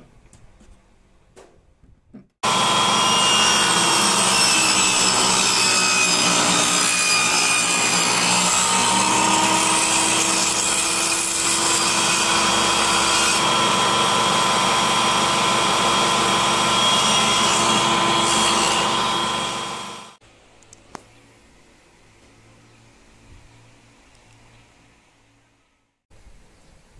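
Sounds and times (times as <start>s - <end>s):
table saw blade whine: 2.4s - 20.2s.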